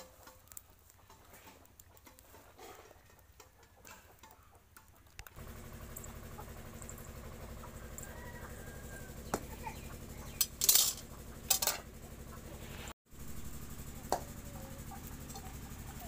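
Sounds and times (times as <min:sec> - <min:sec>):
metal cookware clanking: 0:10.3 - 0:11.9.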